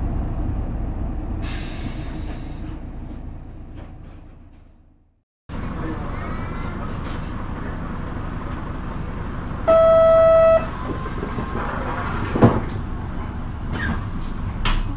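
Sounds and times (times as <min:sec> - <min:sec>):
diesel buses rumbling: 0:00.0 - 0:14.9
flat horn-like beep: 0:09.7 - 0:10.7.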